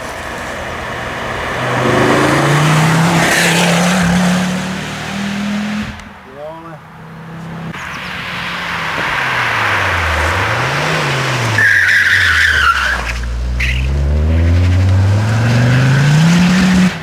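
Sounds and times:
car engine revving: 0.6s - 6.1s, 7.1s - 17.0s
tyres squealing: 9.2s - 16.6s.

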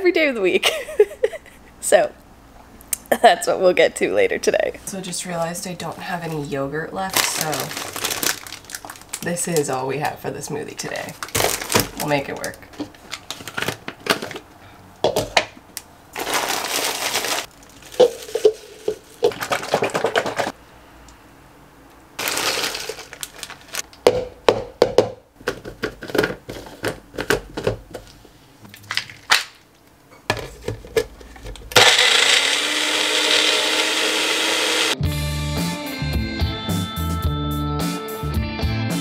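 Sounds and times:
blender motor running: 31.8s - 35.0s.

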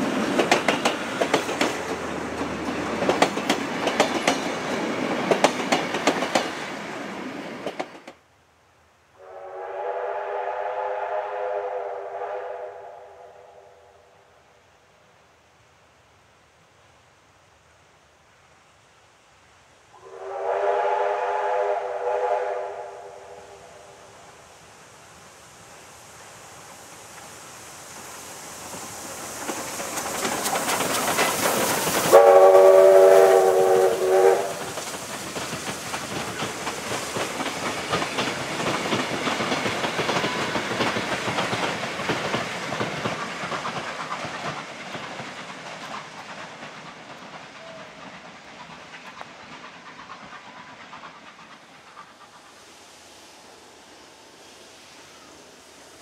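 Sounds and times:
steam locomotive passing: 0.0s - 8.3s, 9.2s - 56.0s
steam whistle: 9.2s - 14.1s, 20.0s - 24.2s, 32.0s - 34.7s.

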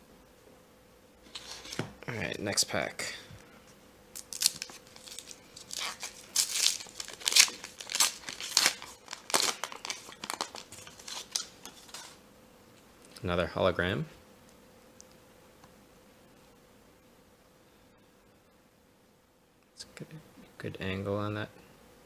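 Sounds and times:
foil wrapper crinkling and tearing: 1.3s - 1.8s, 4.1s - 12.2s.

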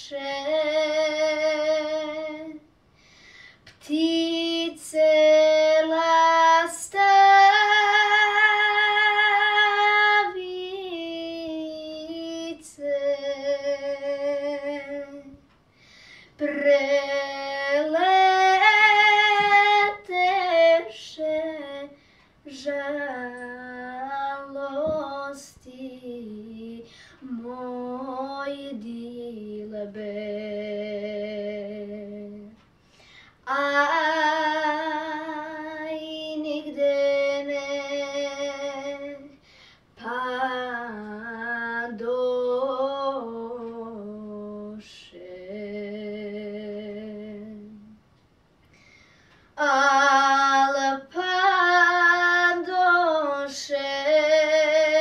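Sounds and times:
girl singing unaccompanied: 0.0s - 2.8s, 3.6s - 15.6s, 16.3s - 32.8s, 33.4s - 48.0s, 49.5s - 55.0s
short breaths: 2.9s - 3.7s, 15.7s - 16.4s, 32.8s - 33.4s, 39.4s - 39.9s, 48.6s - 49.5s.

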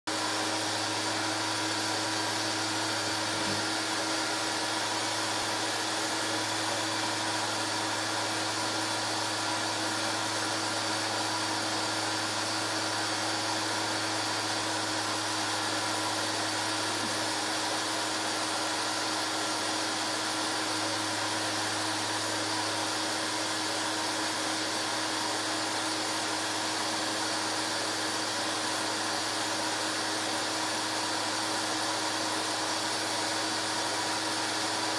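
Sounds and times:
film projector motor whirring: 0.1s - 34.9s.

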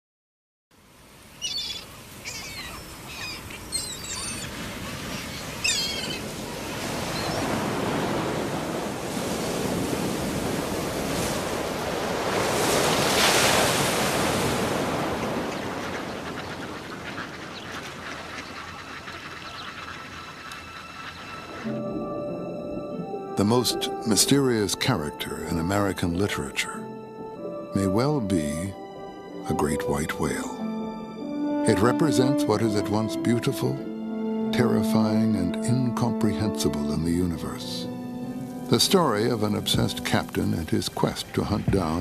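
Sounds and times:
waves surging: 0.8s - 26.2s, 37.5s - 42.0s
birds calling: 1.2s - 42.0s.

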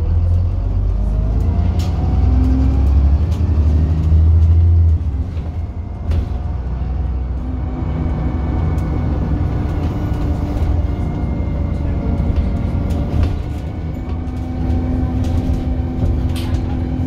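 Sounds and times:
bus engine rumbling: 0.0s - 17.0s.

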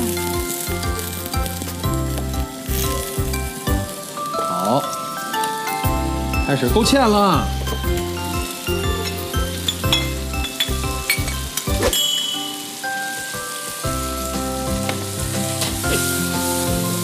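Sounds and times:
background music: 0.0s - 17.0s
chicken wings sizzling in a pan: 0.0s - 17.0s.

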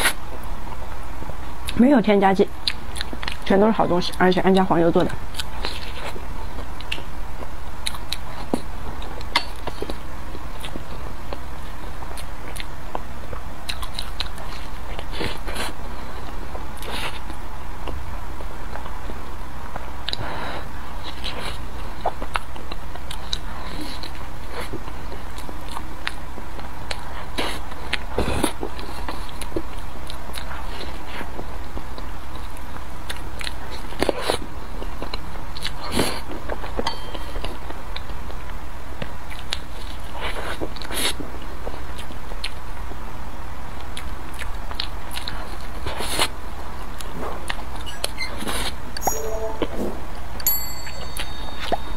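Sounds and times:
wet chewing sounds: 2.6s - 20.3s, 21.0s - 36.8s, 43.8s - 48.7s.

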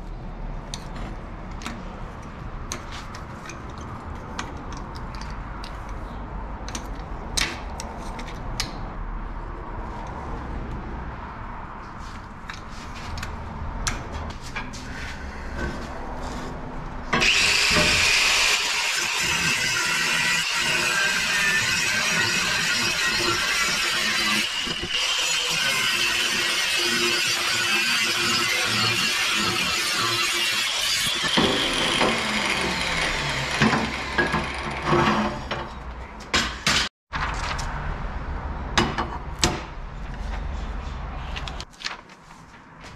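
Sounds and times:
angle grinder cutting metal: 17.1s - 35.6s.

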